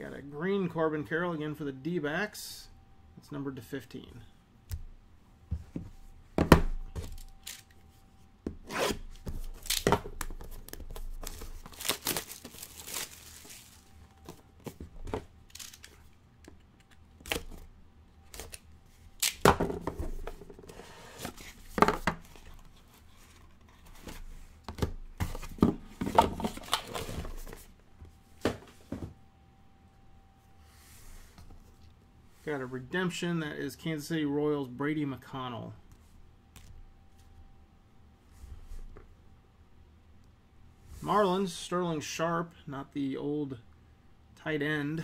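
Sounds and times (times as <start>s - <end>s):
cardboard tearing: 11.6s - 13.8s.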